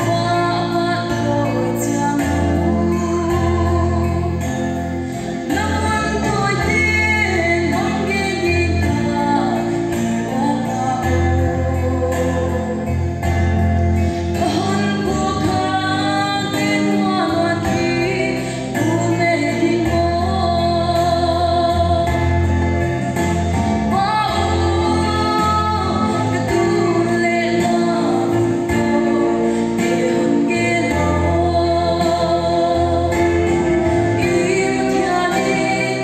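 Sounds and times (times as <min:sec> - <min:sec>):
woman singing gospel: 0:00.0 - 0:04.5, 0:05.4 - 0:13.0, 0:14.3 - 0:22.4, 0:23.8 - 0:36.0
amplified instrumental accompaniment: 0:00.0 - 0:36.0.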